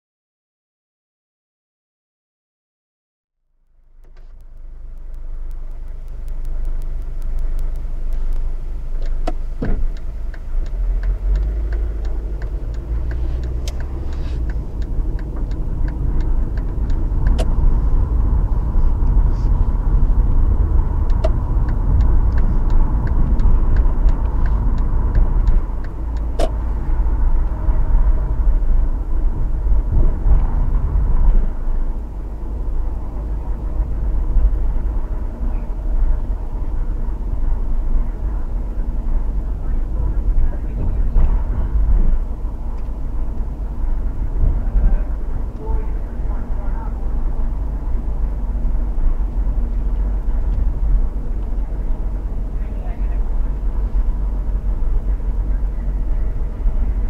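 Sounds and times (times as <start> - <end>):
vehicle engine and road rumble: 3.4 - 57.0
sharp clicks: 3.9 - 17.7, 21.0 - 26.6.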